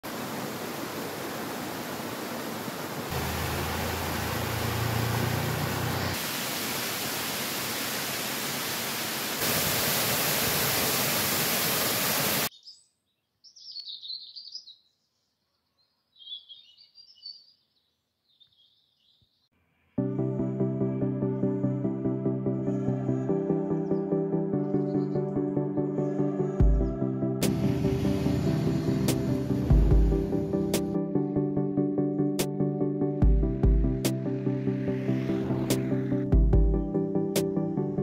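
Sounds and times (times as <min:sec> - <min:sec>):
waterfall splashing into a pool: 0:00.0 - 0:12.5
small birds chirping: 0:03.3 - 0:06.2, 0:12.5 - 0:19.6.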